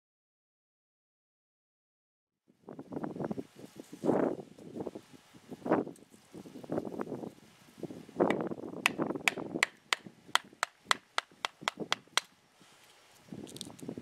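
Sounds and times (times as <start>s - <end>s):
blade chopping wood: 8.3s - 12.3s.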